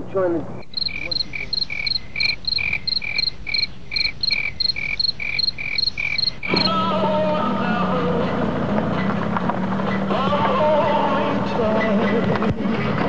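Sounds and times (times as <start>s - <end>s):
steady low hum: 0.0s - 8.8s
crickets chirping: 0.6s - 6.8s
drifting tones: 6.0s - 13.0s.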